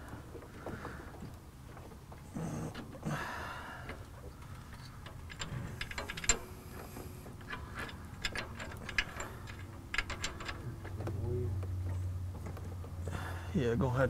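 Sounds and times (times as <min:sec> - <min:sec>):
metallic clicks of hardware: 0:03.9 - 0:12.9.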